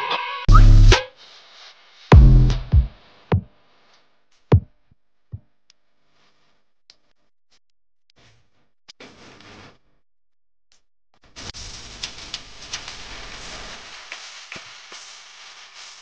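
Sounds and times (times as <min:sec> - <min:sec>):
drum machine hits with deep bass: 0:00.5 - 0:01.0, 0:02.1 - 0:03.5.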